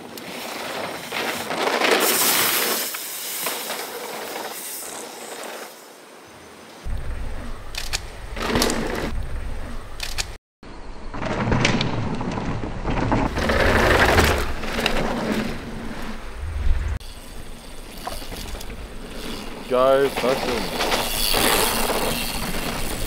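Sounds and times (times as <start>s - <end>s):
bike tyres rumbling on dirt: 0.0s - 5.6s, 6.9s - 10.0s, 11.0s - 23.0s
bike knocks and rattles: 11.1s - 15.6s, 17.9s - 23.0s.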